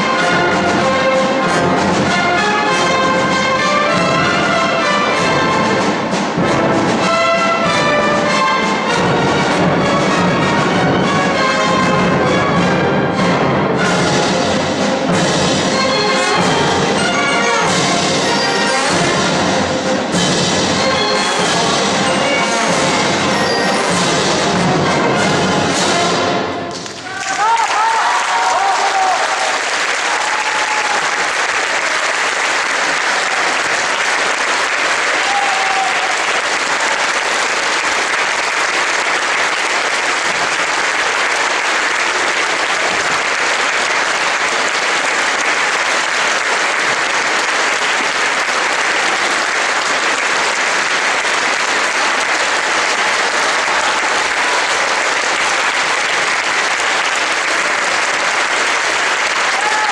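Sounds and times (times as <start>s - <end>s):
audience applauding: 26.7s - 59.9s.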